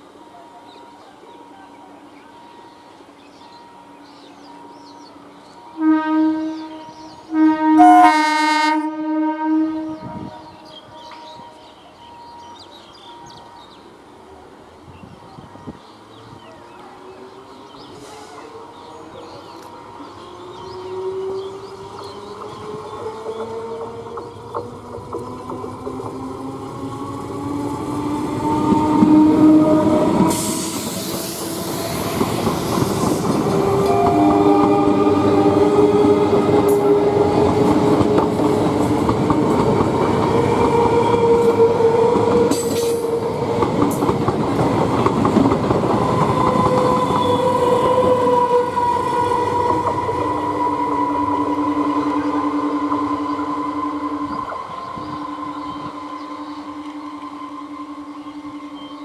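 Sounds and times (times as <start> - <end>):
train rumble: 9.7 - 59.0
train wheels clattering over rails: 21.4 - 29.2, 29.8 - 48.4
burst of hiss: 30.3 - 32.0
whining tones sliding in pitch: 46.2 - 59.0.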